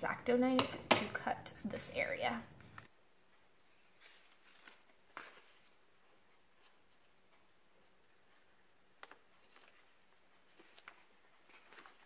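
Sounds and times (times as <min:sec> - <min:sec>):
paper handling noises: 0:02.6 - 0:12.0.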